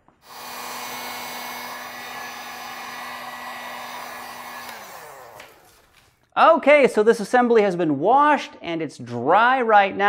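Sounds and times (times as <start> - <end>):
heat gun blowing air: 0.2 - 6.0.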